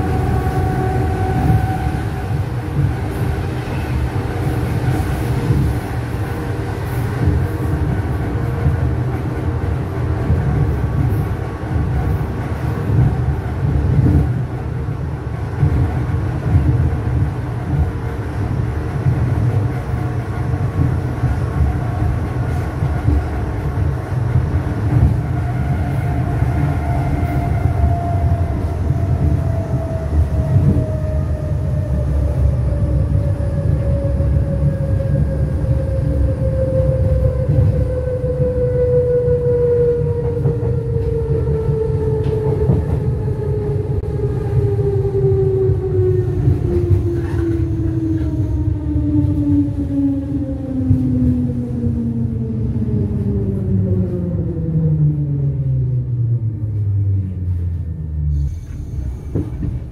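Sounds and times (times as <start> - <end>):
electric train rumble: 0.0 - 59.9
train whine: 0.0 - 59.9.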